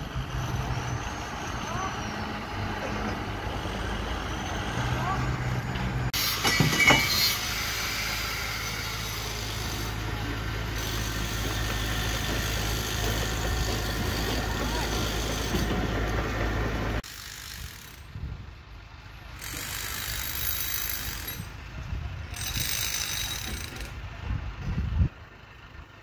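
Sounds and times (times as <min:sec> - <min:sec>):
engine humming: 0:00.0 - 0:17.1.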